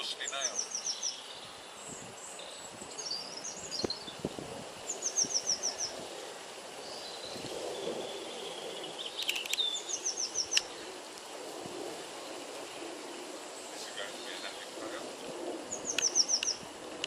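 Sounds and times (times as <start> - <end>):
songbird high falling chirps: 0.0 - 6.0, 6.8 - 10.8, 15.6 - 16.7
outdoor background noise: 0.0 - 17.0
sharp clicks: 9.2 - 9.7, 10.5 - 10.7.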